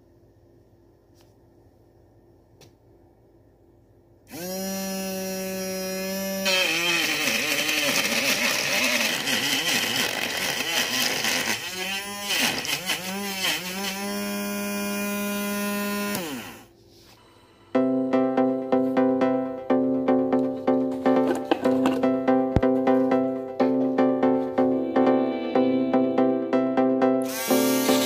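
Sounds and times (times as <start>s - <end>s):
small electric motor spinning blade: 4.3s - 16.7s, 27.2s - 28.0s.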